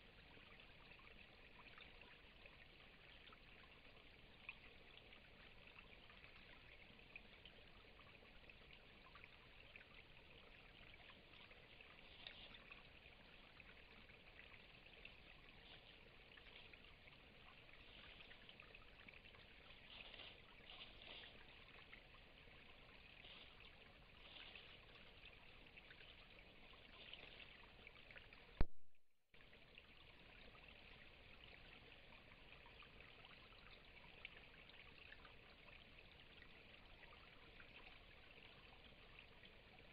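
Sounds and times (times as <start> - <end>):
faint steady hiss: 0.0 - 28.7.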